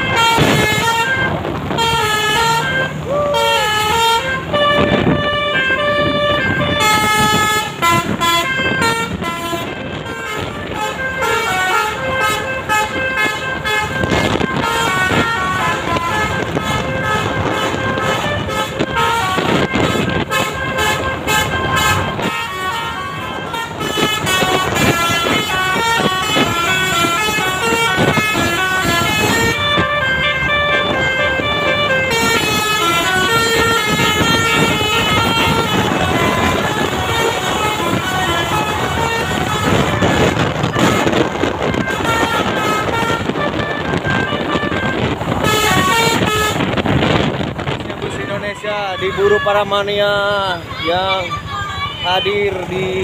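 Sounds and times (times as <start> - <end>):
multi-tone bus horn melody: 0.0 - 53.0.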